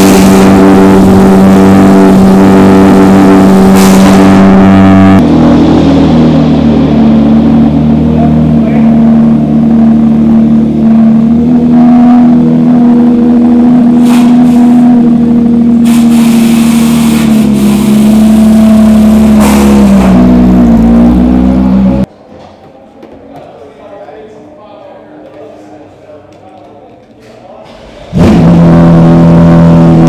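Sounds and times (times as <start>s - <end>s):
race car engine revving: 0.0s - 22.1s, 27.8s - 30.0s.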